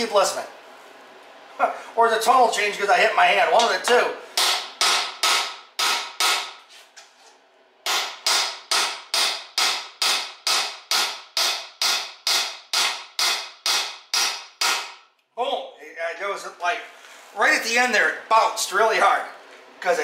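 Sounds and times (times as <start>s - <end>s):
hammer striking metal driver: 3.6s - 6.6s, 7.8s - 15.0s.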